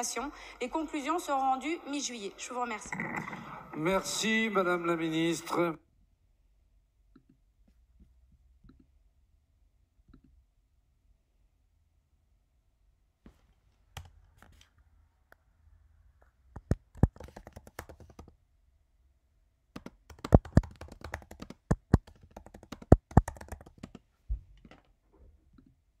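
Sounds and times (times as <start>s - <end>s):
keyboard typing and mouse clicks: 2.7s - 4.2s, 13.9s - 14.8s, 16.6s - 18.4s, 19.8s - 24.9s.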